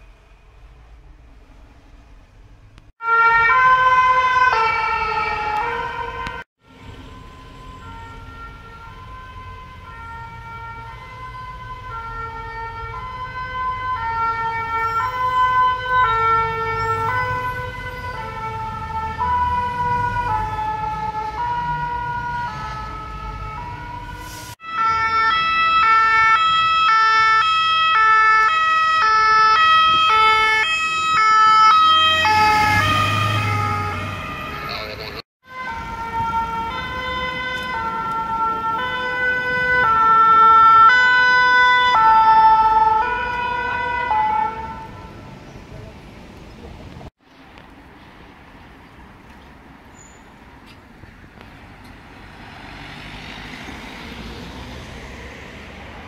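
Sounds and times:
engine and traffic rumble: 0.0s - 56.0s
two-tone emergency sirens: 3.0s - 45.4s
vehicle passing: 30.8s - 47.0s, 51.0s - 56.0s.

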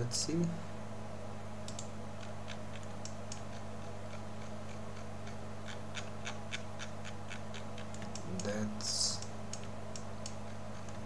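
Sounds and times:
low electrical hum: 0.0s - 11.0s
computer mouse clicking: 1.6s - 8.6s, 9.2s - 11.0s.

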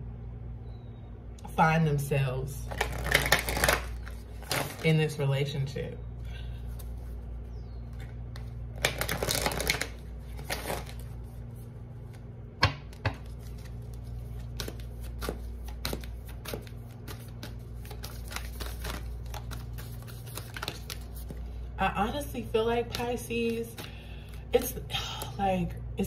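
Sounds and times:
low steady hum: 0.0s - 26.0s
cards shuffling rattle: 2.7s - 4.8s, 7.9s - 11.4s, 12.9s - 21.4s.

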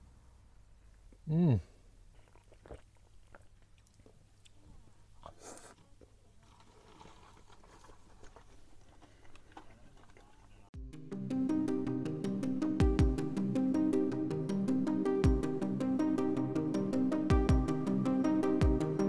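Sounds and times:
person biting and chewing: 2.1s - 4.6s
rustling: 2.1s - 10.7s.

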